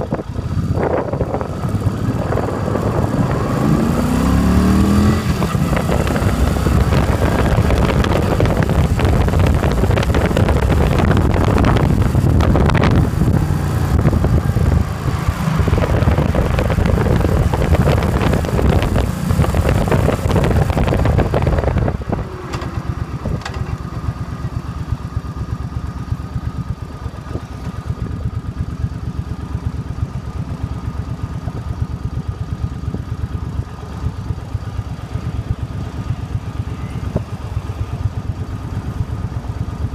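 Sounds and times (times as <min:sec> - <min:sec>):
wind rush on microphone: 0:00.0 - 0:22.4
motorcycle engine running: 0:00.0 - 0:39.9.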